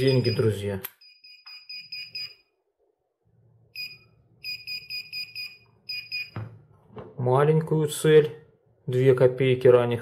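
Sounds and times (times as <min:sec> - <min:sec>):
metal detector beeping rapidly: 0:00.0 - 0:02.4.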